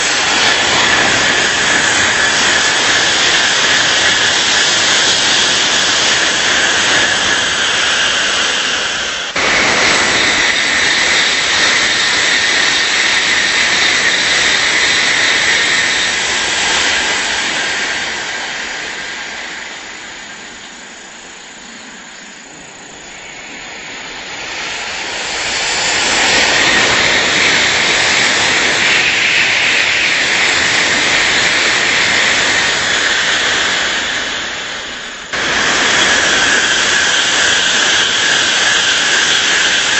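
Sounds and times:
high-speed trains rushing past: 0.0s - 39.9s.

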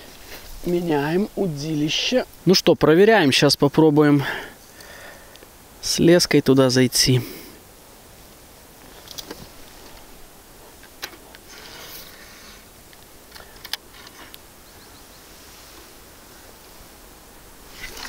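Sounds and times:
short rustle: 0.0s - 1.1s, 8.8s - 18.0s.

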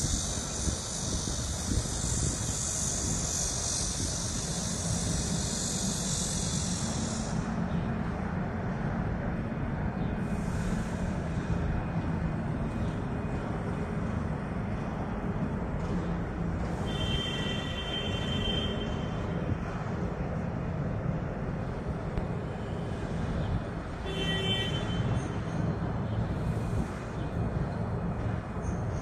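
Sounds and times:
diesel engine running: 0.0s - 29.0s
high-pitched squeal: 16.7s - 19.5s.

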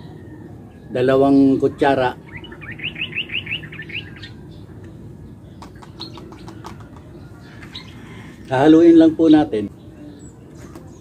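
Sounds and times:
small bird chirping: 1.8s - 8.4s.

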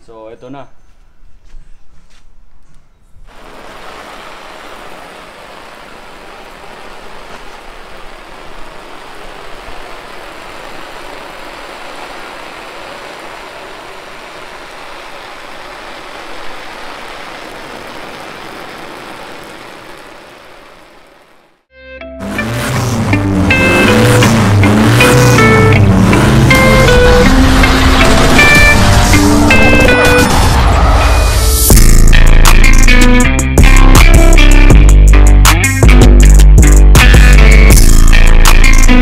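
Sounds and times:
water spraying on tent fabric: 3.3s - 21.6s.

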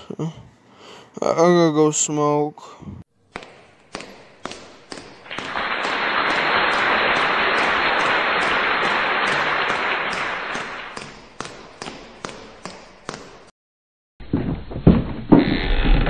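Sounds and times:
crowd applause: 5.3s - 11.0s.

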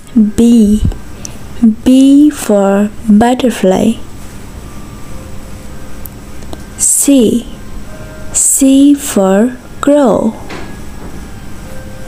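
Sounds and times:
person speaking: 0.0s - 0.9s, 1.6s - 4.1s, 6.8s - 7.6s.

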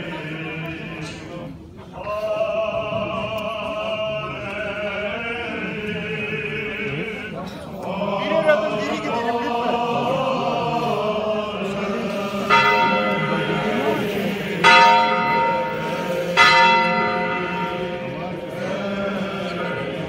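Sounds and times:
murmur of crowd voices: 0.0s - 20.0s
church bell tolling: 12.1s - 20.0s.

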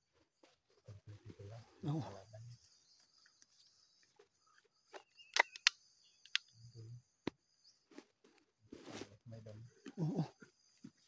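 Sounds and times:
sharp clicks: 5.2s - 6.6s.

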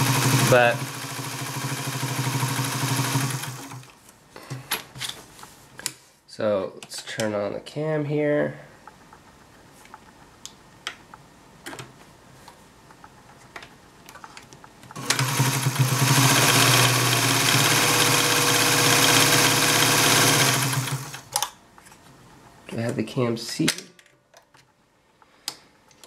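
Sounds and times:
sewing machine running: 0.0s - 3.9s, 15.0s - 21.3s.

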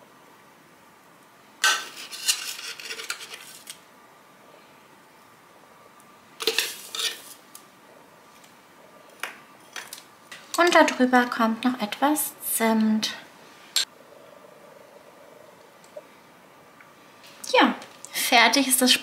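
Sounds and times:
metal spoon scraping baking tin: 1.7s - 3.7s, 6.4s - 7.4s.

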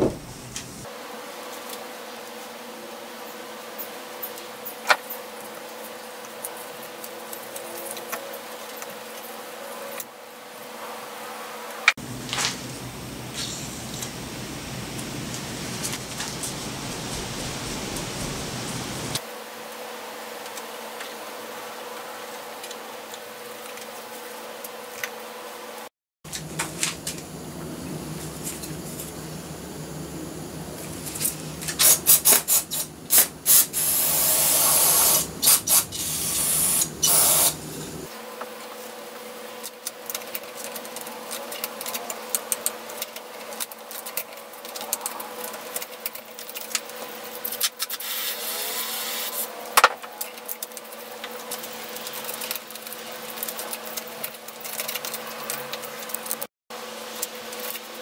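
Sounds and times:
loud hissing bursts: 0.0s - 0.9s, 12.0s - 19.2s, 29.2s - 38.1s
faint steady hum: 12.0s - 19.2s, 26.3s - 38.1s.

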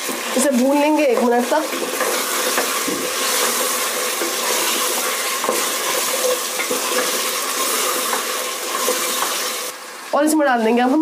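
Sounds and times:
food sizzling in a pot: 0.0s - 11.0s
spoon knocking pot: 1.1s - 3.6s.

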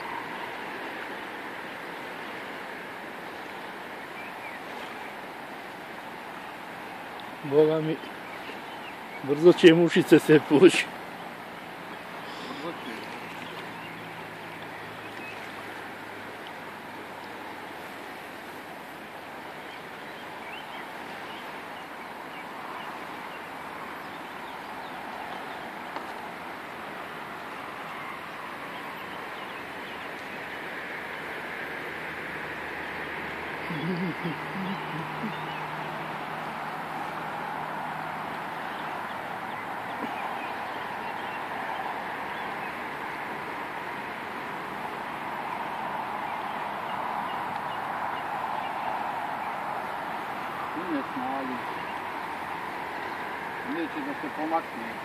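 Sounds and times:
river rushing: 0.0s - 55.0s
faint bird chirps: 11.2s - 15.5s, 33.6s - 36.3s.

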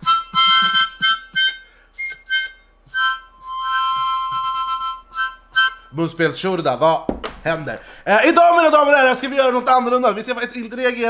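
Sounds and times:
harmonica playing: 0.0s - 6.5s.

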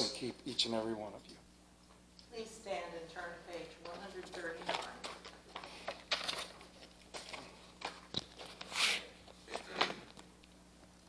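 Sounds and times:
paper rustling: 4.4s - 10.0s
pages being turned: 4.6s - 10.2s.

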